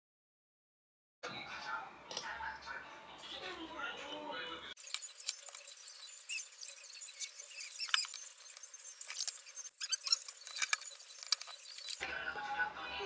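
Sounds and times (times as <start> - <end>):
short squeaks: 4.8 - 12.0.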